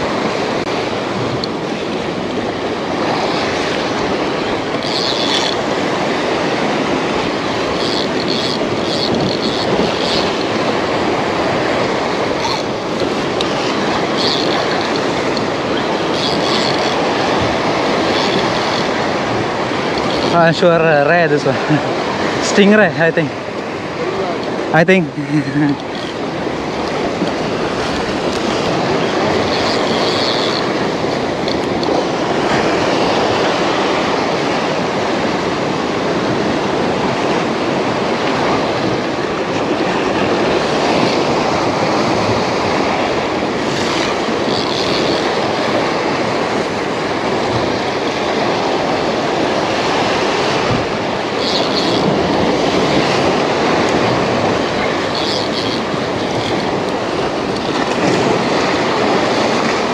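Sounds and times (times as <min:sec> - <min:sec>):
fishing reel winding: 0:01.2 - 0:21.4, 0:24.3 - 0:34.1, 0:42.0 - 0:59.9
high-pitched squeaks: 0:04.7 - 0:05.6, 0:07.7 - 0:10.7, 0:12.3 - 0:19.2, 0:19.9 - 0:20.5, 0:25.7 - 0:32.0, 0:43.7 - 0:45.9, 0:51.3 - 0:52.7, 0:54.7 - 0:57.8.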